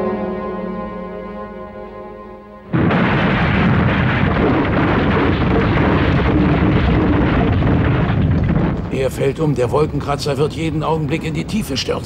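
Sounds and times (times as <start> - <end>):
held music chords: 0.0 - 2.9
loud rumble of building toppling: 2.8 - 12.0.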